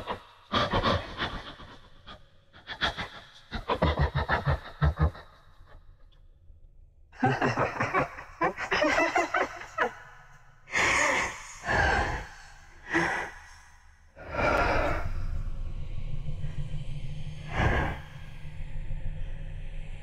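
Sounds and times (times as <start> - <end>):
person making broken vocal sounds: 7.2 - 10.0, 10.7 - 13.5, 14.2 - 15.2
heavy breaths: 7.2 - 15.8, 17.4 - 18.6.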